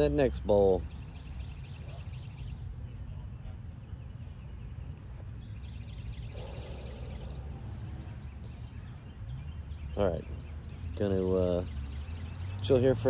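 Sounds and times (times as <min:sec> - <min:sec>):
faint bird chirping: 0:00.0 - 0:13.0
steady low rumble: 0:00.8 - 0:10.5.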